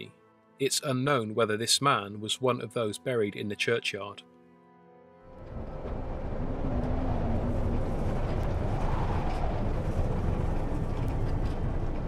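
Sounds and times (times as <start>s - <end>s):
storm deep rumbling roar: 5.3s - 12.0s.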